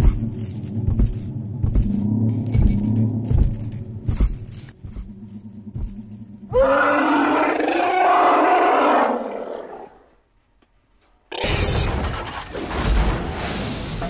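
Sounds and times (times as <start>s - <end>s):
heavy thuds: 0.0s - 6.4s
low rumble: 0.0s - 6.6s
dinosaur roar: 6.4s - 10.1s.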